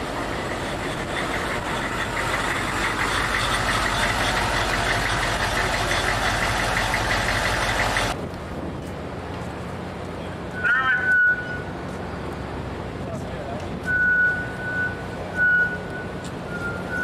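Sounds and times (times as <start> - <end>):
heavy machine running: 0.0 - 8.2.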